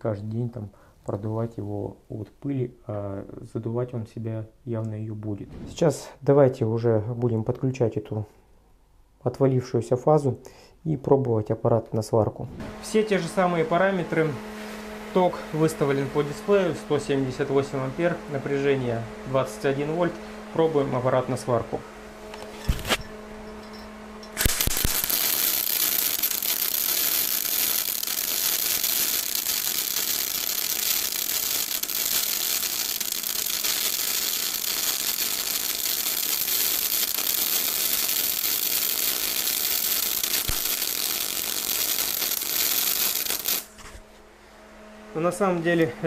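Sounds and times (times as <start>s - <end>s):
welding arc crackling: 24.2s - 43.9s.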